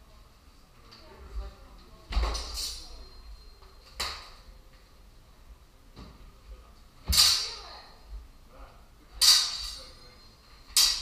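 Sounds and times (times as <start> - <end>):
steel swords clashing: 7.1 - 7.7, 9.2 - 11.0.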